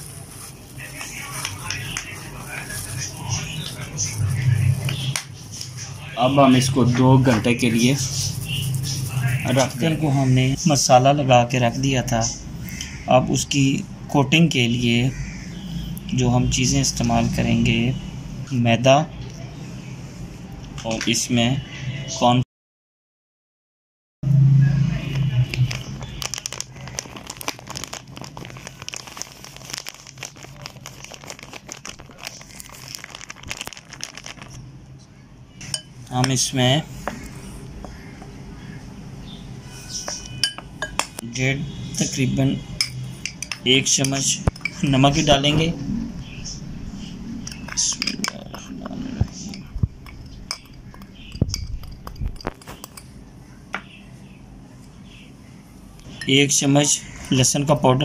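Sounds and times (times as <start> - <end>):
packet crinkling: 0.0 - 4.4, 25.5 - 34.7
metal spoon clinking on glass bowl: 35.6 - 36.4, 40.0 - 41.2, 42.8 - 45.0, 47.5 - 48.7, 49.3 - 53.2.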